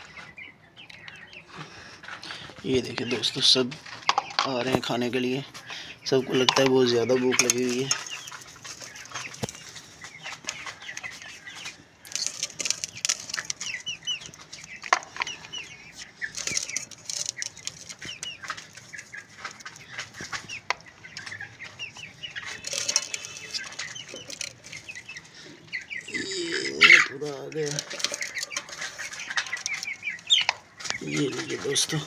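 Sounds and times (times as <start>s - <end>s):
chickens clucking: 0.0s - 32.0s
sharp clicks and rustles: 6.3s - 26.0s, 26.9s - 32.0s.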